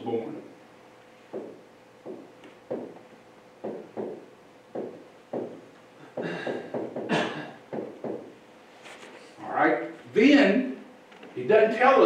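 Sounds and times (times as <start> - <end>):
stylus tapping on touchscreen glass: 1.3 - 3.0, 3.6 - 5.6.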